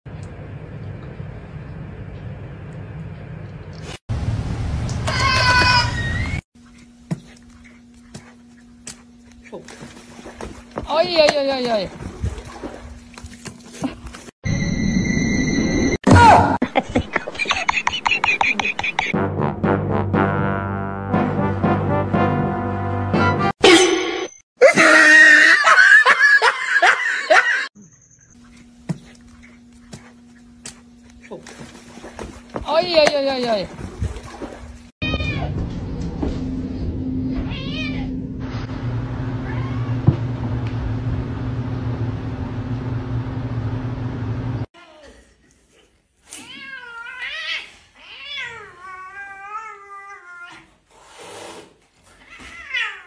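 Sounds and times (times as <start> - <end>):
person laughing hard: 16.6 - 19.2, 24.6 - 27.7
steady low hum: 33.7 - 44.7
cat meowing: 35.0 - 35.5, 37.5 - 38.1.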